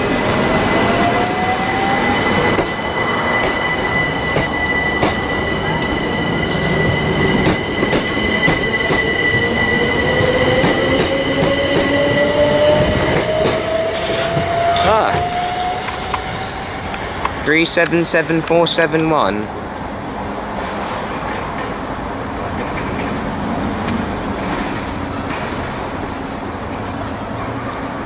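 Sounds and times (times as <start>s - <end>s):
steady high whine: 0.0s - 19.0s
electric train motors whining: 0.0s - 19.7s.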